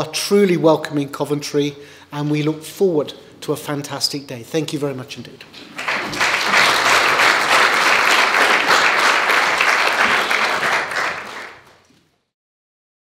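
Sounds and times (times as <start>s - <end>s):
audience applauding: 5.6s - 11.9s.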